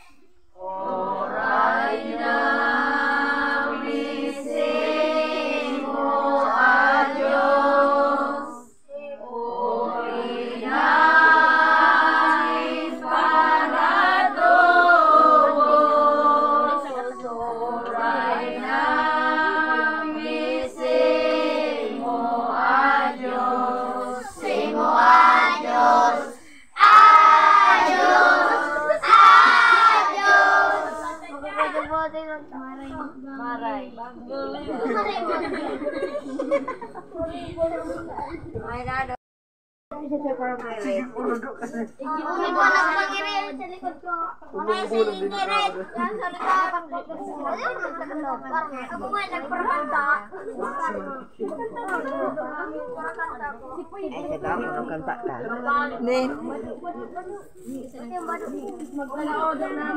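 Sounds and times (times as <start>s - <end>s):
children singing unaccompanied: 0.0s - 36.8s, 42.1s - 44.0s.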